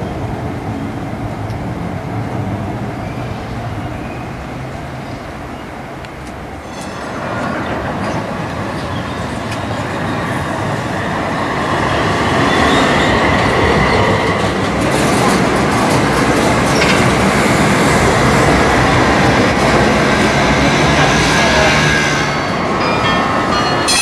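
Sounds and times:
tram running on rails: 0.0 - 24.0
steel wheel squeal: 6.6 - 7.6.

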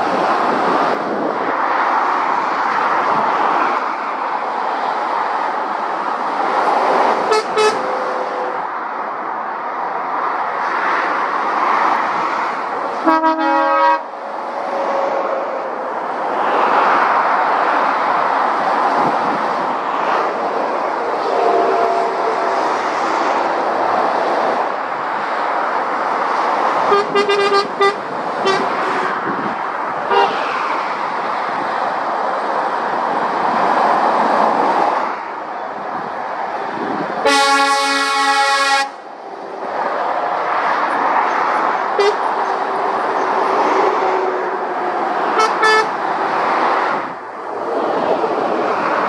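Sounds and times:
vehicles passing on road: 0.0 - 49.0
vehicle horn: 7.3 - 8.6, 13.0 - 14.1, 21.2 - 22.6, 26.9 - 29.1, 30.1 - 30.4, 37.2 - 39.0, 42.0 - 42.2, 45.4 - 45.9.

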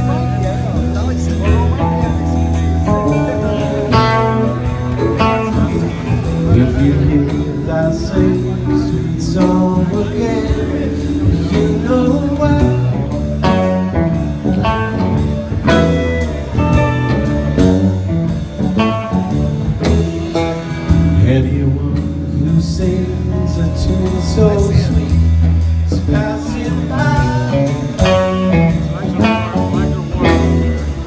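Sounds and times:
person singing: 0.0 - 13.9, 21.1 - 31.0
live rock band: 0.0 - 31.0.

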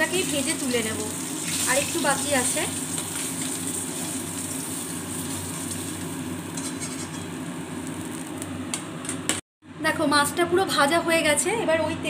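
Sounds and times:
hot oil sizzling in a wok: 0.0 - 8.6
oil spatter crackles: 0.2 - 8.9.

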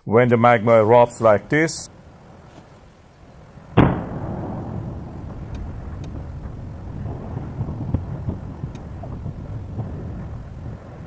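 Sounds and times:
low volcanic rumble: 0.5 - 11.0
lava popping: 1.9 - 11.0
loud eruption boom: 3.4 - 11.0.

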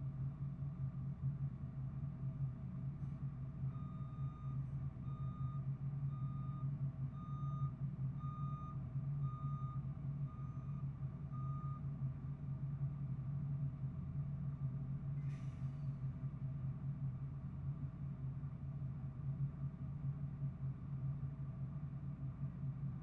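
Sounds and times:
reversing alarm beeping: 3.7 - 11.9.

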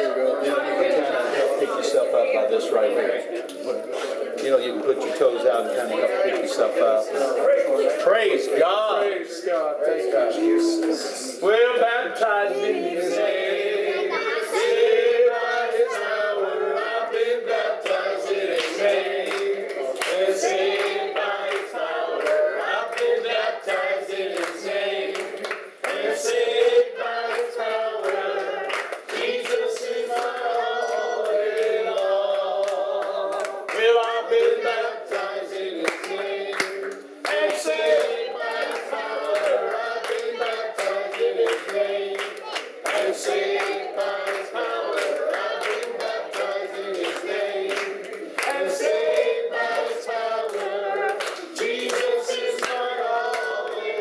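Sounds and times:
congregation singing: 0.0 - 54.0
hands clapping: 10.8 - 11.1, 17.8 - 54.0.

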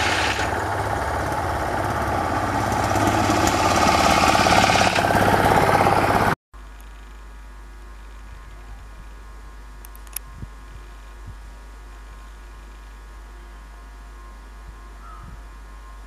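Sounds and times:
small engine running rhythmically: 0.0 - 6.4
faint steady hum: 6.6 - 16.0.

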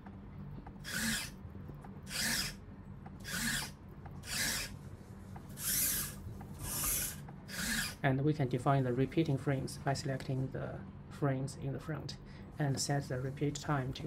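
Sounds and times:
robot legs rasping and scraping: 3.2 - 8.0.

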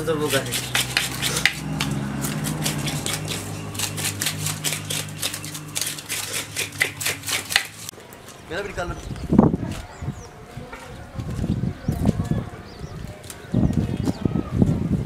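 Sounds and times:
knives scraping fish scales: 0.0 - 7.9.

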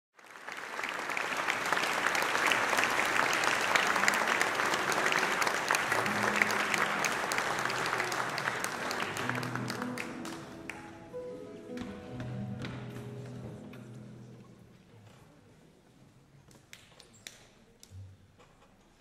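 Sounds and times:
audience applauding: 0.2 - 11.2
soft low instrument notes: 4.2 - 15.3.

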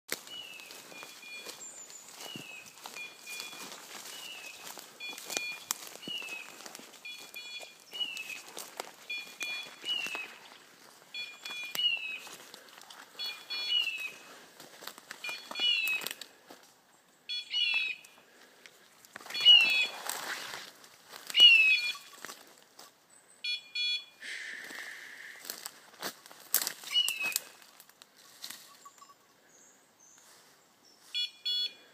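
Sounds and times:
rustling through dry leaves: 0.1 - 16.6, 18.4 - 22.8, 24.6 - 28.9
electronic collar chirps: 2.3 - 8.4, 9.0 - 10.5, 11.1 - 12.3, 23.4 - 24.2, 31.2 - 31.8.

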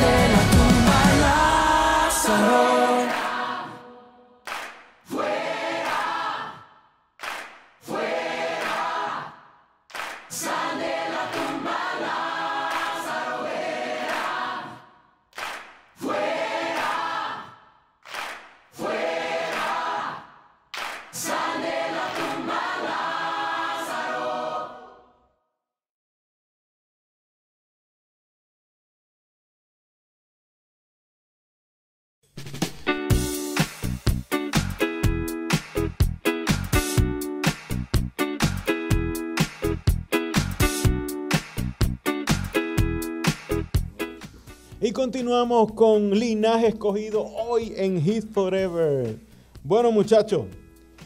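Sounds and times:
music with deep bass: 0.0 - 1.6
group singing a cappella: 0.0 - 4.4, 5.1 - 6.8, 7.8 - 9.6, 10.3 - 15.0, 16.0 - 17.8, 18.7 - 20.5, 21.1 - 25.3.

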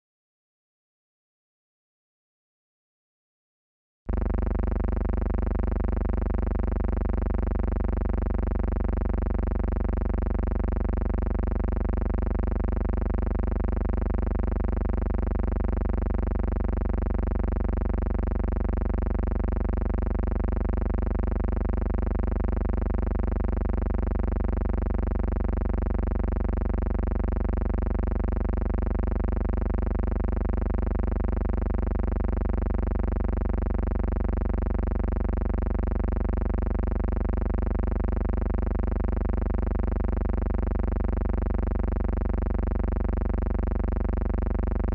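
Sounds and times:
electrical hum: 4.1 - 25.0.

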